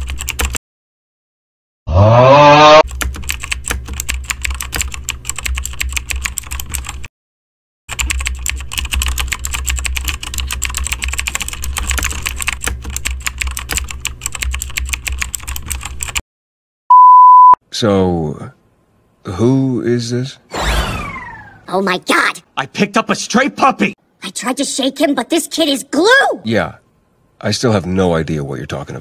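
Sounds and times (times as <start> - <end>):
keyboard typing: 0.0 - 0.6, 2.9 - 7.1, 7.9 - 16.2
low hum: 20.5 - 21.7.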